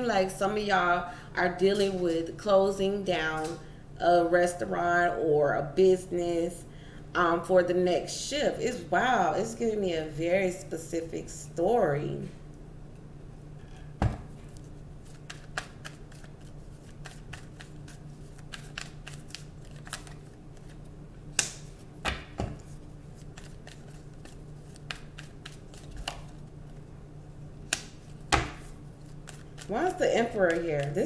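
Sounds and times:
cards riffling: 0:14.4 - 0:26.4, 0:27.7 - 0:31.0
card slaps: 0:15.1 - 0:16.3, 0:21.3 - 0:22.7, 0:23.4 - 0:26.3, 0:27.7 - 0:29.7.

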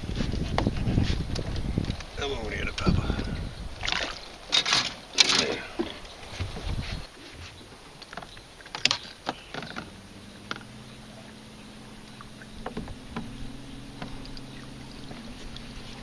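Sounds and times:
boat motor humming: 0:00.0 - 0:16.0
handling knocks and clicks: 0:03.8 - 0:06.8, 0:08.0 - 0:10.7, 0:12.2 - 0:16.0.

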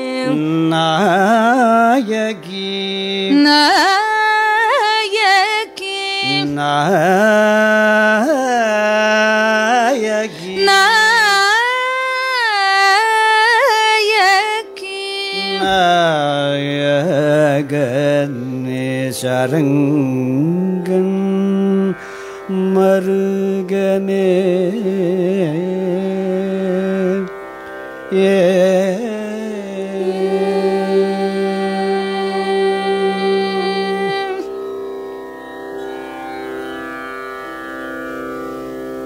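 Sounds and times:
person singing ornamented phrases: 0:00.0 - 0:27.3, 0:28.1 - 0:34.6.

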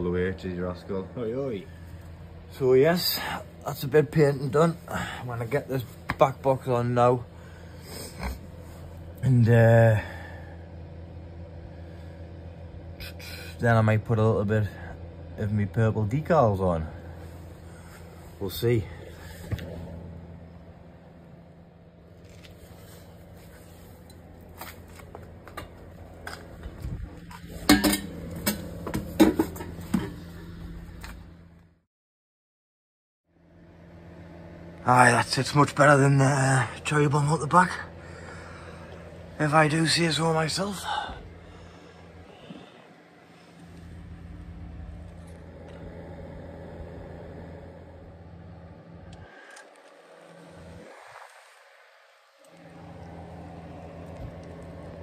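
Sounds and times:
car engine idling exhaust: 0:00.0 - 0:31.5, 0:34.5 - 0:50.9, 0:52.5 - 0:55.0
steady low hum: 0:00.0 - 0:31.8, 0:33.3 - 0:55.0
metal exhaust clinks and knocks: 0:27.3 - 0:30.2.

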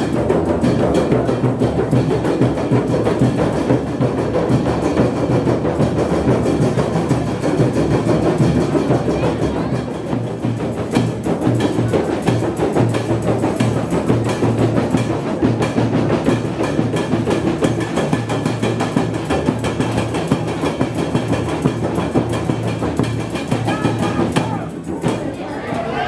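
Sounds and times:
drum and percussion music: 0:00.0 - 0:26.0.

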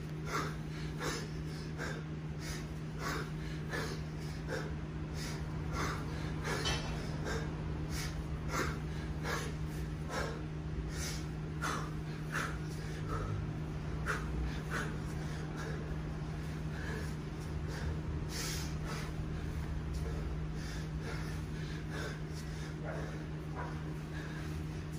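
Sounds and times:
man breathing hard: 0:00.0 - 0:24.9
steady low hum: 0:00.0 - 0:24.9.

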